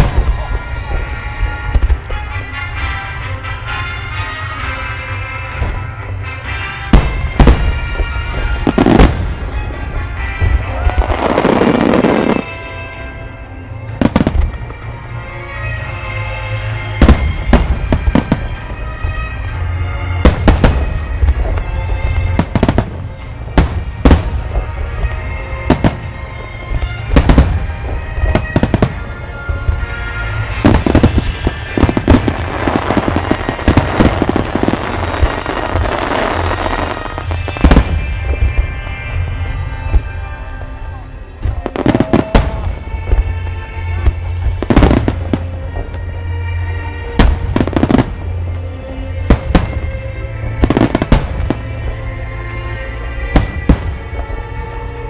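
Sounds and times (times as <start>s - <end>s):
fireworks bursting with sharp bangs: 0.0s - 55.0s
music: 0.0s - 55.0s
fireworks crackling hiss: 17.2s - 55.0s.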